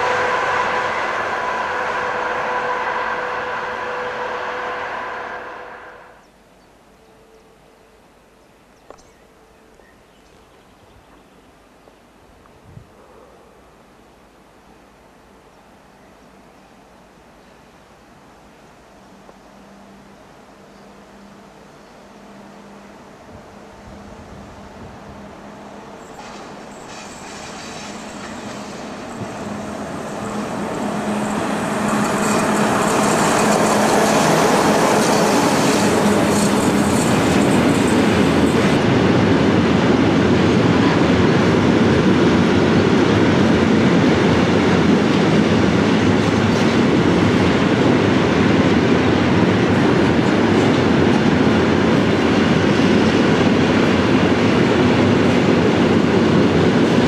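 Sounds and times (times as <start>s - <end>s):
electric locomotive hum: 0.0s - 10.1s, 13.6s - 57.0s
train wheels rumbling over rails: 23.2s - 57.0s.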